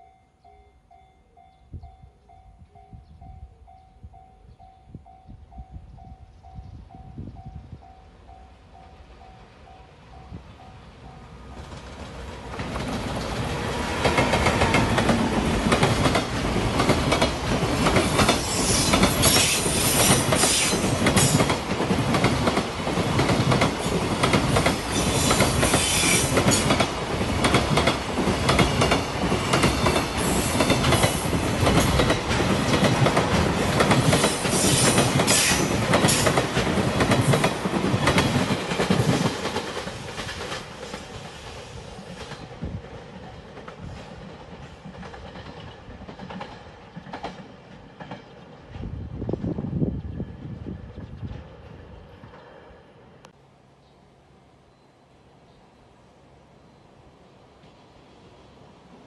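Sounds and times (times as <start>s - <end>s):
freight train passing: 0.0s - 59.0s
train wheels clattering over rails: 11.6s - 49.6s.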